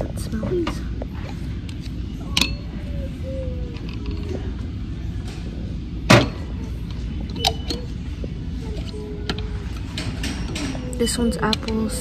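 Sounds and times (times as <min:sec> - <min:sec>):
low store background hum: 0:00.0 - 0:12.0.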